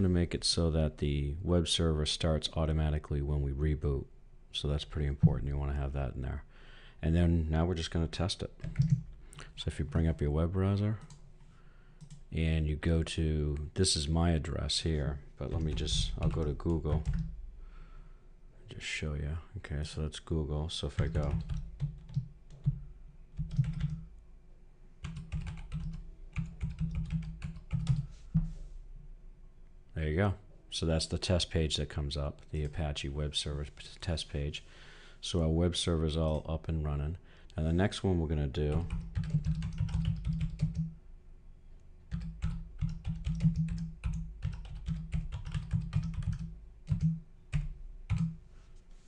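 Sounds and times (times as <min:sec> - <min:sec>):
computer keyboard typing: 0:08.6 - 0:09.0, 0:15.5 - 0:17.3, 0:21.0 - 0:22.8, 0:23.4 - 0:24.1, 0:25.0 - 0:28.1, 0:38.7 - 0:40.9, 0:42.1 - 0:48.4.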